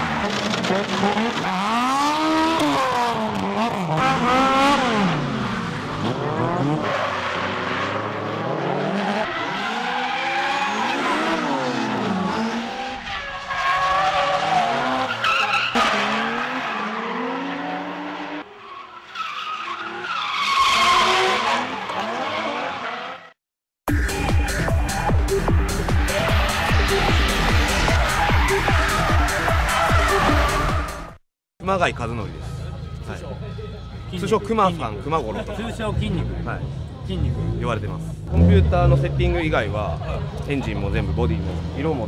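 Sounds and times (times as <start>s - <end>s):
car engines revving: 0.0s - 18.9s, 19.5s - 23.3s, 24.0s - 31.2s, 32.0s - 42.0s
tyres squealing and skidding: 5.1s - 31.2s.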